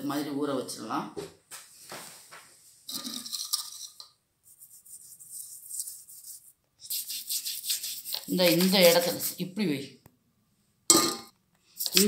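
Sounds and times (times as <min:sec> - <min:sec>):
toothbrush scrubbing plastic: 0:02.9 - 0:09.4, 0:11.8 - 0:12.0.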